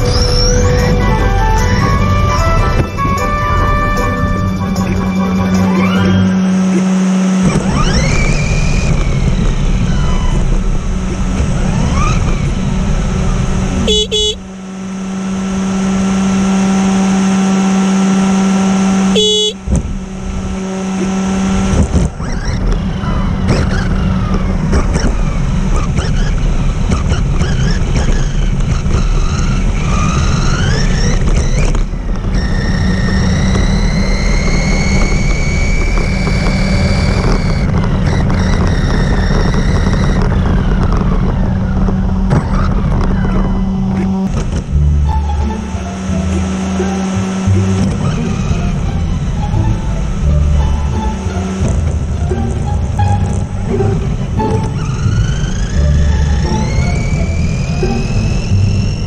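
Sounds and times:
tyre and road noise: 0:00.0 - 0:59.0
electric rc car motor whining: 0:06.0 - 0:12.6, 0:21.0 - 0:45.6.

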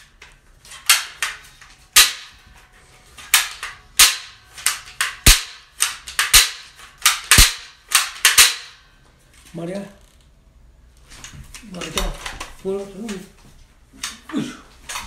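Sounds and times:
toy cap gun cracks: 0:03.2 - 0:08.8.

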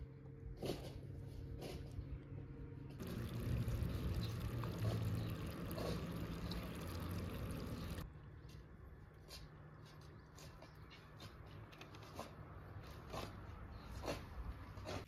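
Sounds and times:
liquid pouring: 0:03.0 - 0:08.0.

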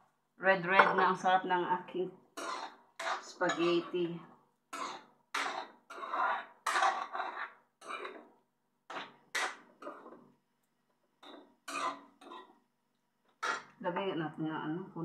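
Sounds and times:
wooden spatula scraping a wok: 0:02.4 - 0:10.3, 0:13.4 - 0:13.8.

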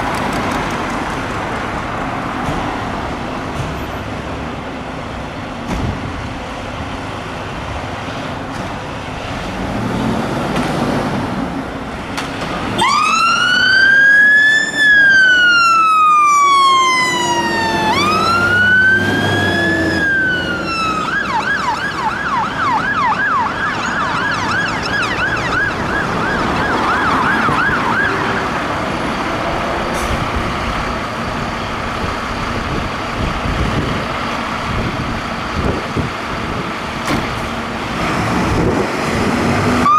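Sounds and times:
fire engine siren wailing and yelping: 0:12.7 - 0:30.0, 0:39.7 - 0:39.9.

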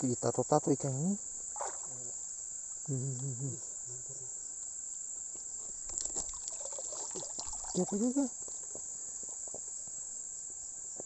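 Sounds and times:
crickets chirring: 0:00.0 - 0:11.0
man murmuring: 0:02.9 - 0:04.3.

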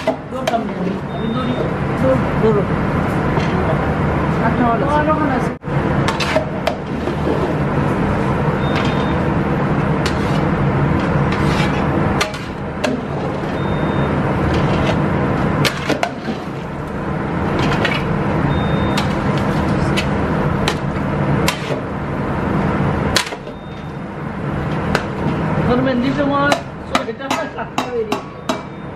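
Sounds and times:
kitchen equipment roar: 0:00.0 - 0:28.9
metal ladle scraping a pot: 0:10.0 - 0:13.6.

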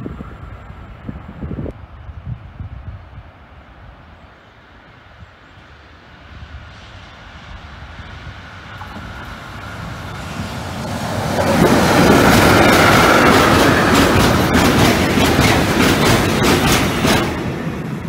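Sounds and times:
freight train passing: 0:00.0 - 0:18.0
wheels clicking over rail joints: 0:08.8 - 0:18.0.

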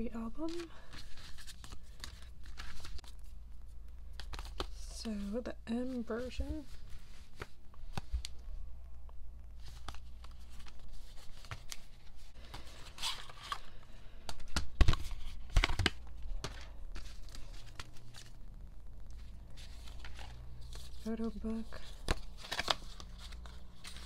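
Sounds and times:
paper and plastic crinkling: 0:00.4 - 0:03.3, 0:09.6 - 0:18.4, 0:19.1 - 0:24.0.

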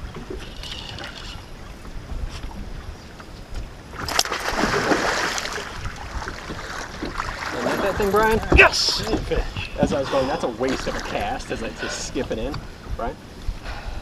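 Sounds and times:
wind rumbling on microphone: 0:00.0 - 0:14.0
fish splashing at surface: 0:04.0 - 0:05.8.

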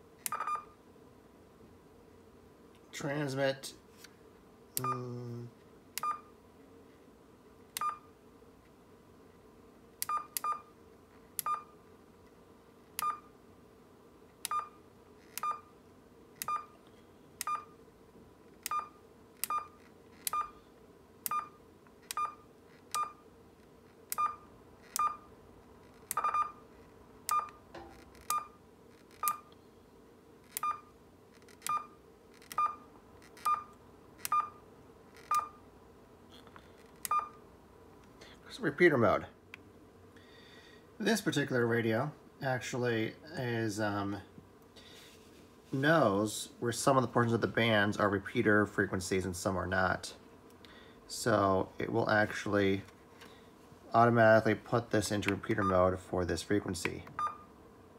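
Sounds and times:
faint steady hum: 0:00.0 - 0:57.9
radio key beeps: 0:00.3 - 0:00.7.

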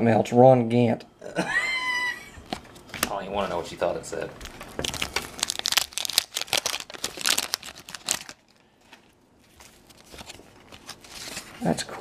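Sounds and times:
cards rustling: 0:04.4 - 0:11.8
wax paper wrapper crackling: 0:04.4 - 0:11.8.

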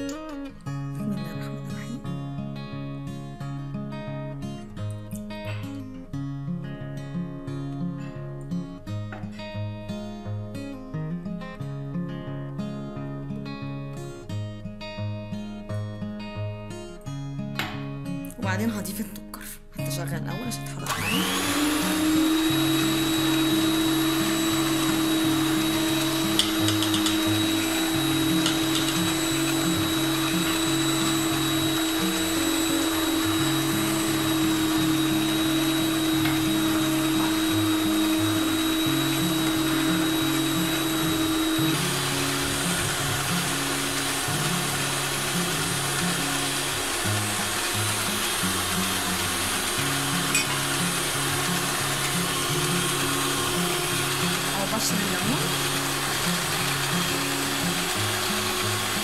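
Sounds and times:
electric stand mixer running: 0:20.8 - 0:59.0.

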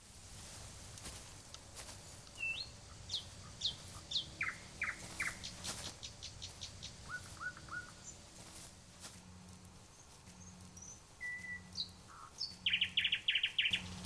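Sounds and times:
bird ticks: 0:00.9 - 0:08.2, 0:09.3 - 0:14.0
small bird chirping: 0:02.2 - 0:08.7, 0:09.5 - 0:14.0.

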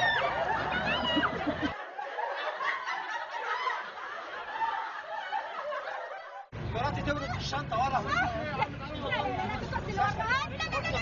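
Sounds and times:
raised voices: 0:00.0 - 0:01.8
people laughing: 0:00.0 - 0:06.5.

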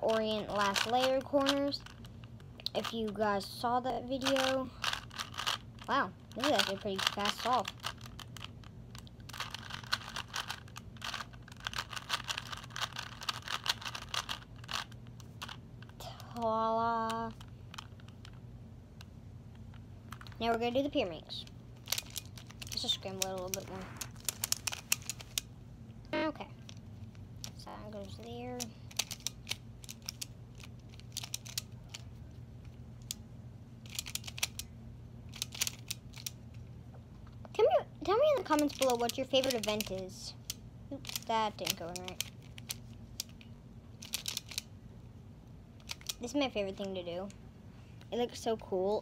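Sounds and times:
puzzle cube clicking: 0:04.2 - 0:16.5, 0:21.8 - 0:25.5, 0:27.4 - 0:32.1, 0:33.9 - 0:34.6, 0:35.3 - 0:36.4, 0:38.5 - 0:43.4, 0:44.0 - 0:44.7, 0:45.8 - 0:46.4.

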